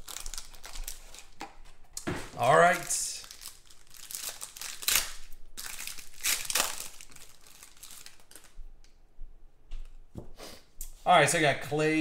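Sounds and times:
foil wrapper crinkling: 0:00.0 - 0:01.4, 0:02.4 - 0:08.6.

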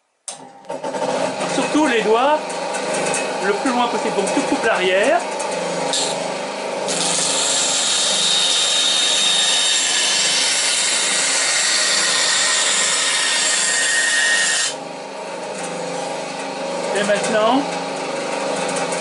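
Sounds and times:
bandsaw motor running: 0:00.7 - 0:19.0
saw blade cutting wood: 0:01.1 - 0:06.2, 0:06.8 - 0:14.8.

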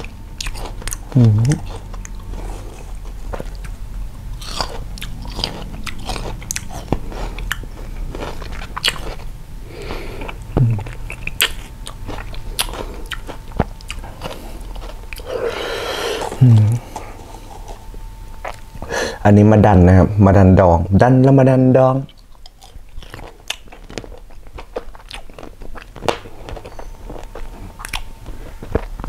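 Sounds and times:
crunchy chewing of raw fruit: 0:00.0 - 0:18.9, 0:22.1 - 0:29.0
person humming: 0:01.1 - 0:01.8, 0:10.0 - 0:11.0, 0:15.2 - 0:17.2.

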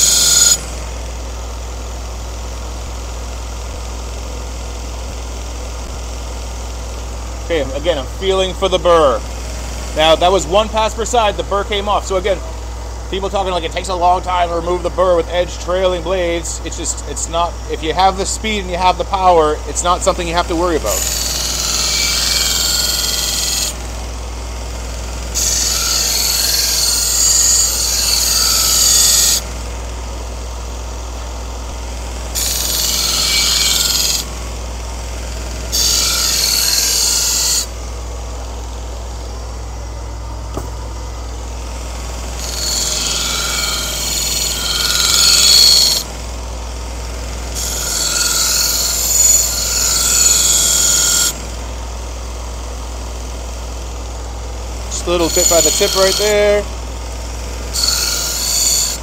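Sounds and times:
belt grinder motor hum: 0:00.0 - 0:01.2, 0:17.3 - 0:39.8, 0:40.4 - 0:59.0.

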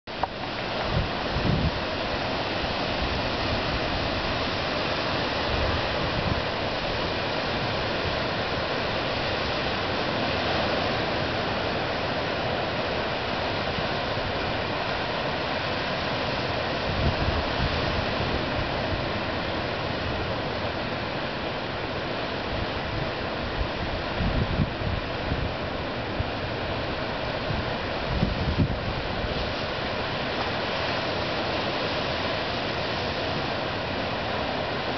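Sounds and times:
ocean surf breaking: 0:00.1 - 0:34.9
wind buffeting microphone: 0:00.2 - 0:08.6, 0:16.6 - 0:20.4, 0:22.5 - 0:30.4.

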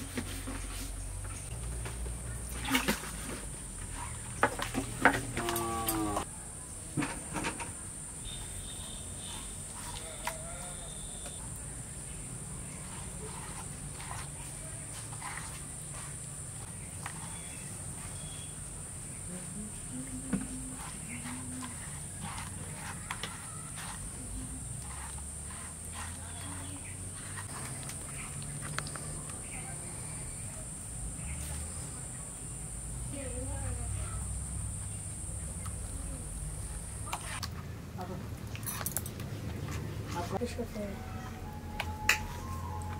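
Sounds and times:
hand mixing wet paste: 0:08.3 - 0:11.7, 0:12.3 - 0:19.1, 0:19.9 - 0:29.6.

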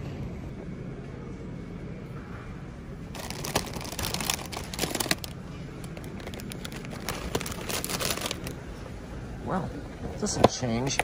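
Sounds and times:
plastic packages crinkling: 0:03.1 - 0:08.6.

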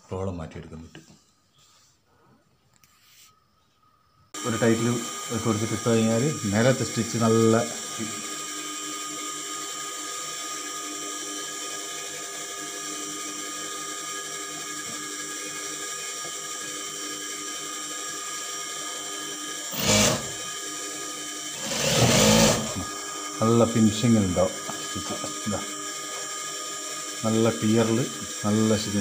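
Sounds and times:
sewing machine motor humming: 0:04.4 - 0:29.0
sewing machine stitching: 0:19.7 - 0:20.5, 0:21.6 - 0:22.9.

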